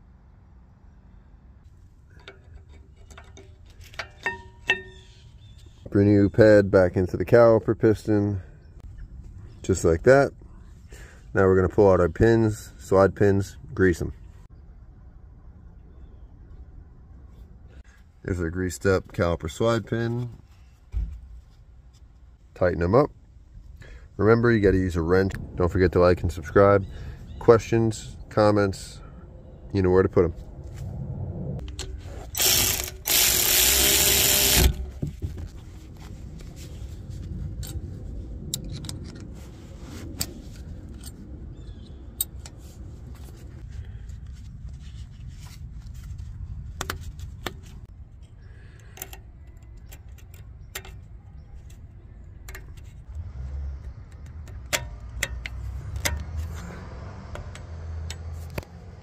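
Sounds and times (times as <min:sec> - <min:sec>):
metal tools clinking: 0:02.1 - 0:05.2
hand ratchet clicking: 0:32.3 - 0:35.0.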